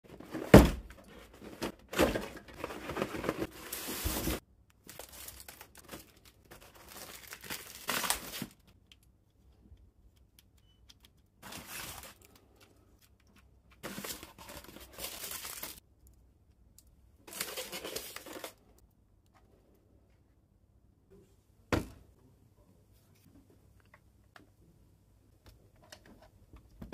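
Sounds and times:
cardboard and plastic rustling: 0:00.1 - 0:08.7, 0:11.4 - 0:12.8, 0:13.7 - 0:15.8, 0:17.3 - 0:18.8.

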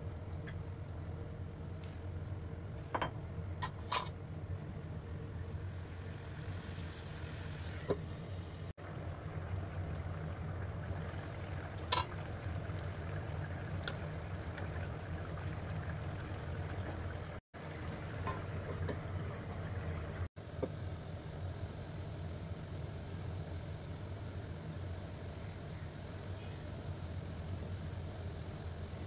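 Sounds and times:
induction cooktop humming: 0:00.0 - 0:29.0
curry bubbling in a wok: 0:08.8 - 0:29.0.

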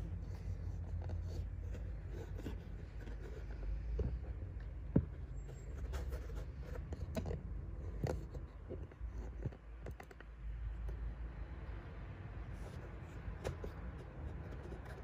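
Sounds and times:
handling clicks and taps: 0:00.0 - 0:11.1.

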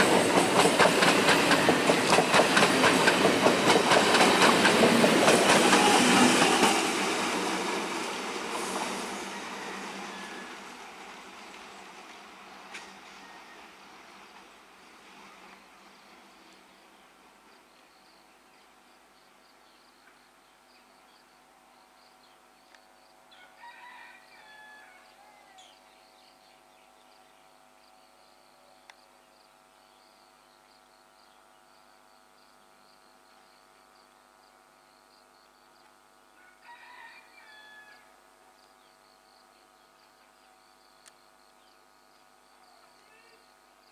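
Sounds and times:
faint rooster crowing: 0:08.8 - 0:11.1, 0:12.6 - 0:14.2, 0:23.3 - 0:25.9, 0:36.3 - 0:38.4.

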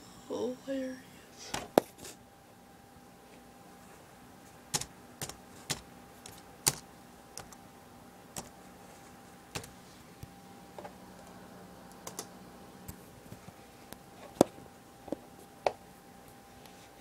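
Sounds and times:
faint hum: 0:00.0 - 0:17.0
laptop keys clicking: 0:04.7 - 0:07.6, 0:09.5 - 0:09.8, 0:11.9 - 0:12.3.

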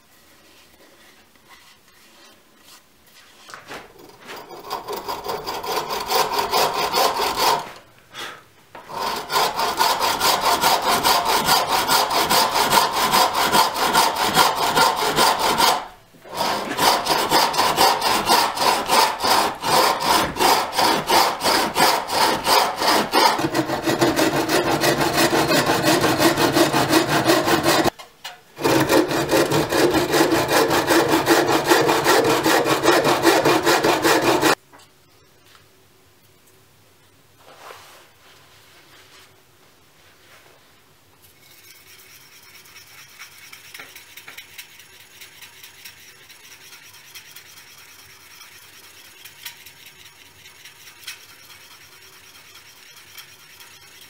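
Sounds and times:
bow saw cutting wood: 0:04.1 - 0:07.8, 0:08.8 - 0:28.0, 0:28.6 - 0:34.6.

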